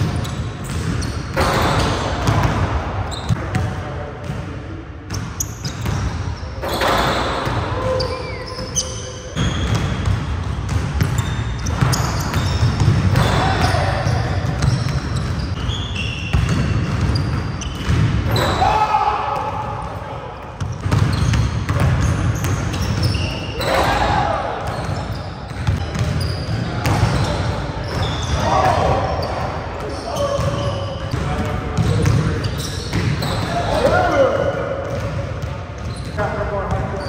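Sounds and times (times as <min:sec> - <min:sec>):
shoe squeaks: 0:00.0 - 0:02.2, 0:03.0 - 0:03.5, 0:05.1 - 0:10.1, 0:11.0 - 0:18.6, 0:20.6 - 0:31.2, 0:31.8 - 0:34.2, 0:35.4 - 0:37.0
basketballs bouncing on wooden floor: 0:00.0 - 0:08.7, 0:09.4 - 0:20.0, 0:20.6 - 0:37.0
players' voices: 0:05.9 - 0:09.6, 0:11.8 - 0:15.8, 0:18.3 - 0:37.0.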